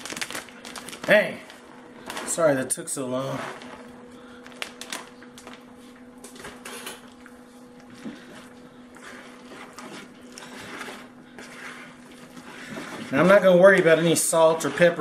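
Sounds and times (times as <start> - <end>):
steady low hum: 0.0 - 15.0
spoon scraping in a bowl: 9.0 - 15.0.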